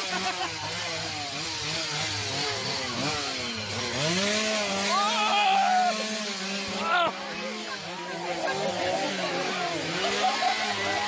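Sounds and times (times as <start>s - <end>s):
small engine revving: 0.0s - 11.0s.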